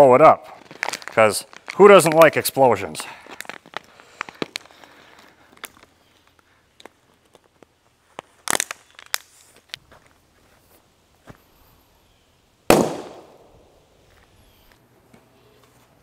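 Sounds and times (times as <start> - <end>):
plastic bottle bursting bang: 12.7 - 13.5.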